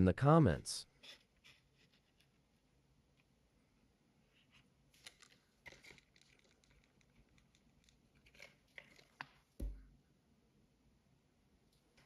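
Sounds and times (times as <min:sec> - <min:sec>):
plastic part clicks and rustles: 0:05.0 - 0:09.8.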